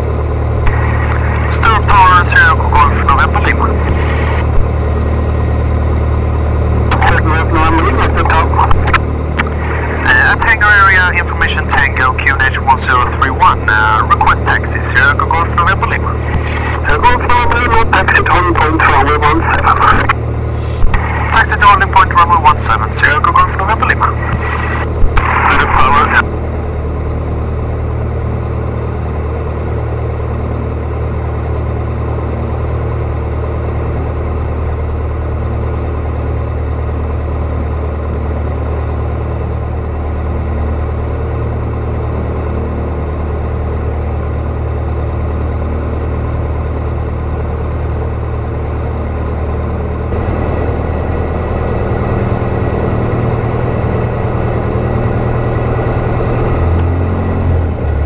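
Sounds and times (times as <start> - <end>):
aircraft engine idling: 0.0 - 58.0.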